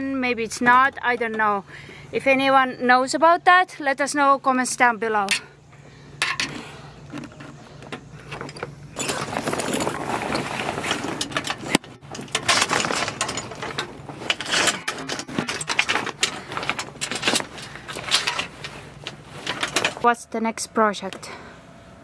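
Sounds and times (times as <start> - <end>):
low steady hum: 0.0 - 22.0
sailcloth rustling and crackling: 7.5 - 20.2.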